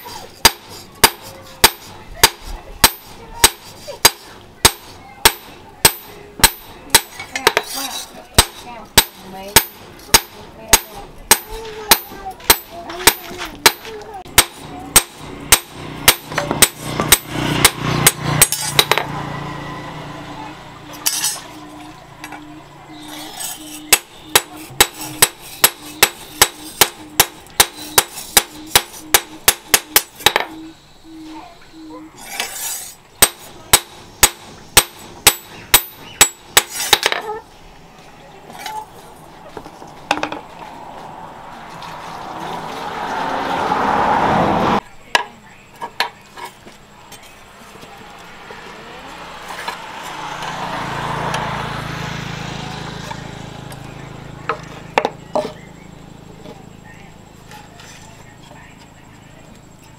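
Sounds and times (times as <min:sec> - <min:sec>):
hammer striking steel on anvil: 0:00.4 - 0:07.8, 0:08.4 - 0:19.2, 0:23.4 - 0:30.6, 0:32.3 - 0:37.2.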